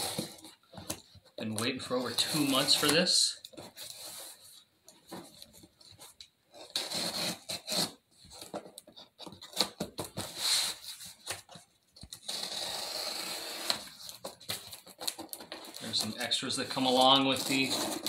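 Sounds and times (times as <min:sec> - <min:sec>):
cardboard rustling: 0:00.0 - 0:12.4, 0:13.7 - 0:18.0
knife scraping through tape: 0:02.0 - 0:03.0, 0:06.6 - 0:08.0, 0:09.4 - 0:11.1, 0:12.2 - 0:16.0, 0:17.3 - 0:18.0
tape being slit with a rasp: 0:06.6 - 0:08.0.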